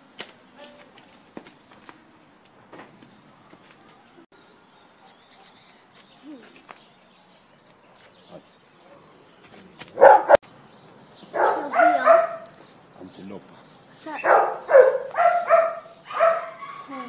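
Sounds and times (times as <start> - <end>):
dog barking: 10.0 - 10.4, 11.3 - 12.5, 14.2 - 17.0.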